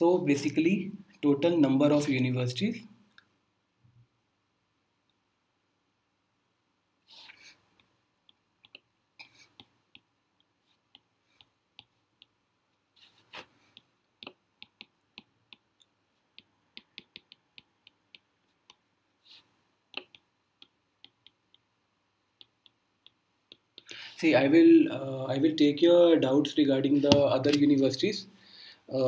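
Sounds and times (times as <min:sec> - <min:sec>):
stylus tapping and scraping on screen: 0:07.0 - 0:24.8, 0:26.8 - 0:28.2.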